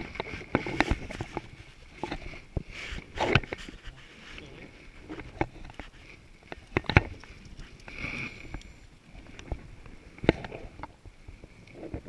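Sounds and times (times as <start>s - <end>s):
short rustle: 0.2s - 6.2s.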